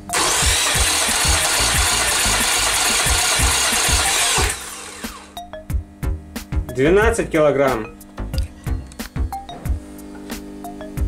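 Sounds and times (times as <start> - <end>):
engine cranking by starter: 0.1 - 5.4.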